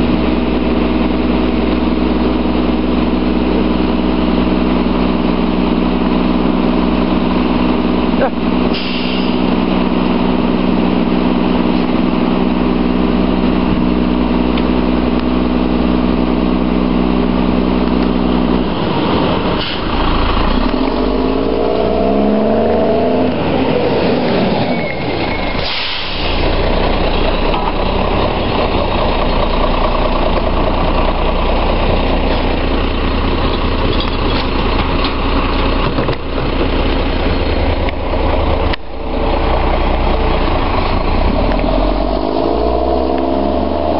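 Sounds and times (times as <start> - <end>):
garbage truck diesel engine: 0.0 - 43.9
air hiss: 25.6 - 26.5.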